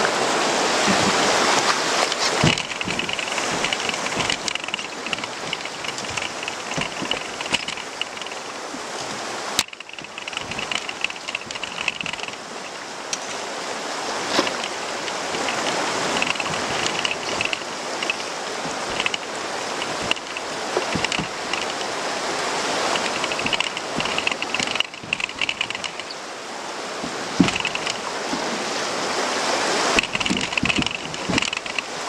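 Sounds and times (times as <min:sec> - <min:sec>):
river rapid rushing and splashing: 0:00.0 - 0:32.0
sharp knocks: 0:02.2 - 0:08.4, 0:09.6 - 0:12.8, 0:14.3 - 0:21.9, 0:22.9 - 0:26.2, 0:27.0 - 0:28.5, 0:29.9 - 0:31.9.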